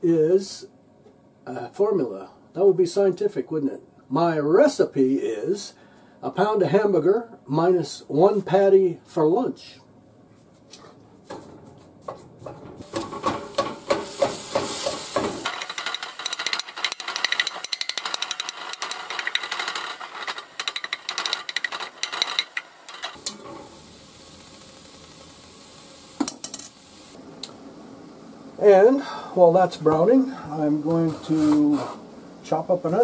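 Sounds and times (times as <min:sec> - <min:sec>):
spatula scraping skillet: 0:12.4 - 0:25.2
meat sizzling: 0:12.8 - 0:29.2.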